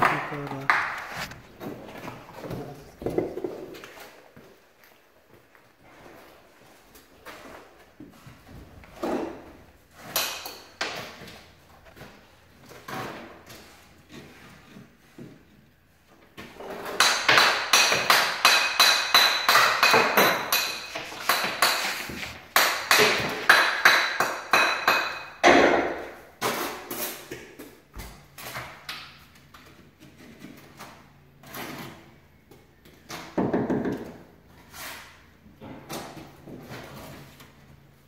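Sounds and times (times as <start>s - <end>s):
hammer striking stone: 16.9s - 26.0s.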